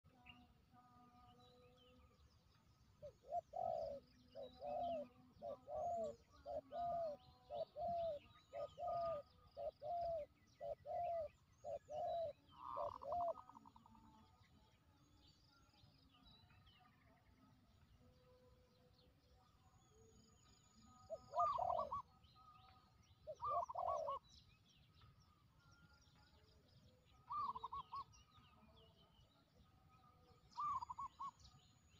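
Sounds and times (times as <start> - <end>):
small birds chirping: 1.2 - 31.9
dove cooing: 3.0 - 13.9, 21.1 - 22.1, 23.2 - 24.3, 27.2 - 28.2, 30.5 - 31.5.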